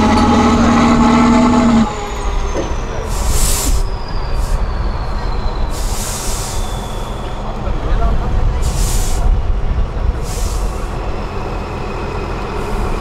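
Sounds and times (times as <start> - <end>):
diesel truck engine: 0.0 - 13.0
air release hisses: 3.1 - 4.6, 5.7 - 7.1, 8.6 - 9.3, 10.2 - 10.9
faint falling whistle: 3.7 - 7.5.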